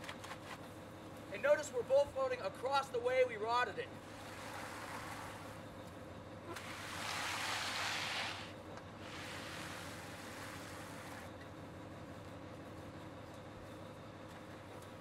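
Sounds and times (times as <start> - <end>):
steady low hum: 0.0 - 15.0
float scraping wet concrete: 4.1 - 5.6, 6.5 - 11.3.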